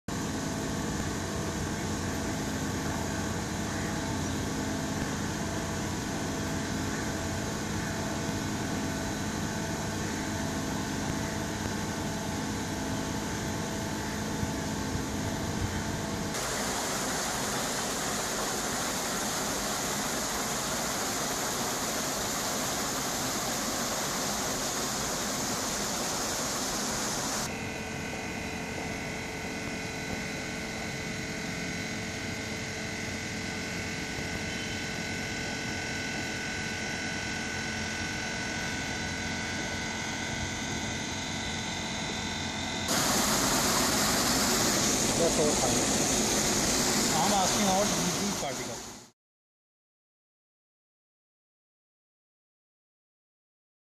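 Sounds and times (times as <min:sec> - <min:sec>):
machinery hum: 0:00.1 - 0:49.1
water rushing through channel: 0:16.4 - 0:27.5, 0:42.9 - 0:49.0.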